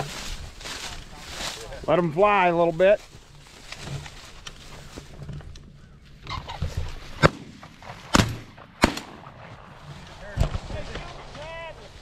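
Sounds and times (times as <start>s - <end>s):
shotgun shots: 7.2s - 9.6s.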